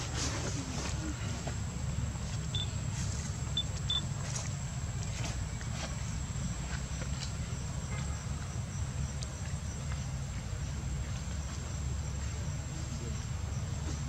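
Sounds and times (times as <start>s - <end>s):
high insect drone: 0.0s - 14.0s
faint chirps: 2.5s - 2.8s.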